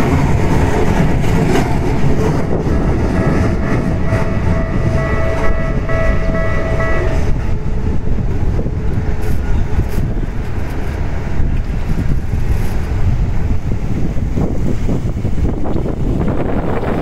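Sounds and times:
low train rumble: 0:00.0 - 0:17.0
wind on microphone: 0:00.0 - 0:17.0.

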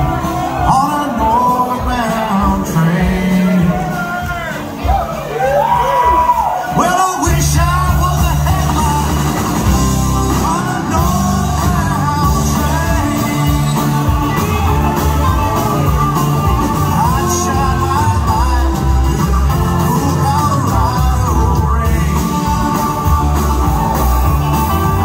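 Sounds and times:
live rock band playing: 0:00.0 - 0:25.0.

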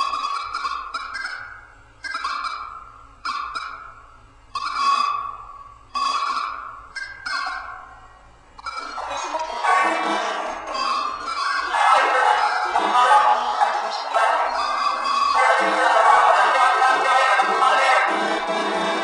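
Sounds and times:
honk-like tone: 0:08.6 - 0:19.0.

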